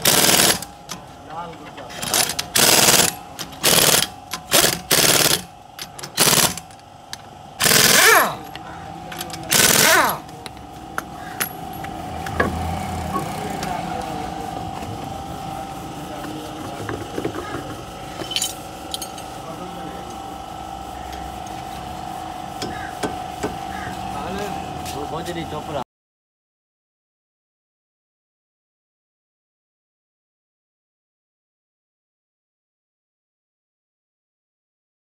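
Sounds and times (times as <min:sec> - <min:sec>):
impact wrench rattling: 0:00.0 - 0:01.0, 0:01.6 - 0:06.8, 0:07.6 - 0:12.6
steady hum: 0:00.0 - 0:25.8.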